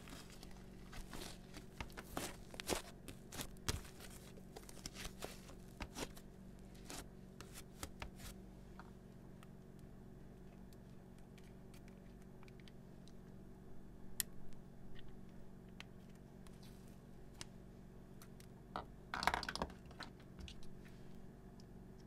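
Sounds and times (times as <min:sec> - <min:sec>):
hands squishing slime: 0:00.0 - 0:06.2
low steady hum: 0:00.0 - 0:22.0.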